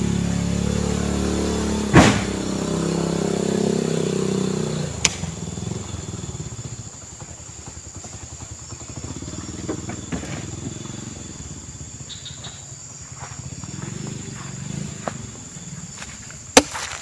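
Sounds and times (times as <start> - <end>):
vehicle engine rumbling: 0.0 - 17.0
fruit bunches thudding on truck bed: 1.9 - 2.5, 16.5 - 17.0.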